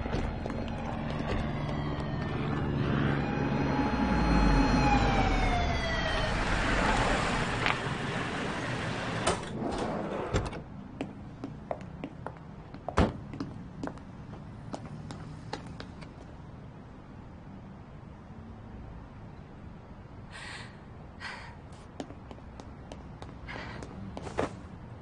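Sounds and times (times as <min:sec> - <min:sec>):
vehicle engine rumble: 0:00.0 - 0:09.6
whine falling in pitch: 0:00.4 - 0:07.8.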